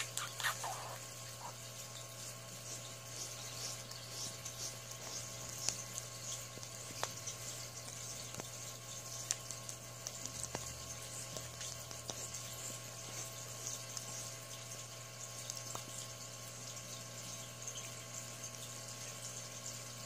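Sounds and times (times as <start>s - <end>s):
kitten licking skin: 0.0s - 1.8s, 2.6s - 14.4s.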